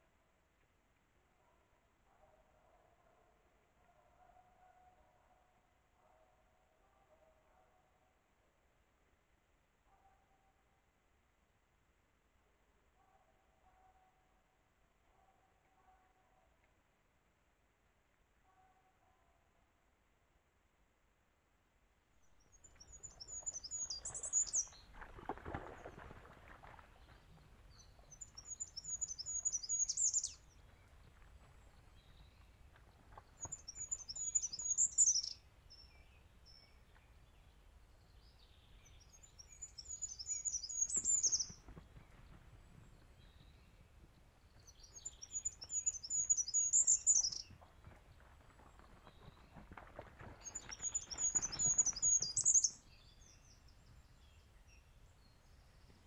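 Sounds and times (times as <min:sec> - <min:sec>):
songbird singing: 0:22.2 - 0:26.1, 0:26.7 - 0:47.7, 0:50.4 - 0:56.0.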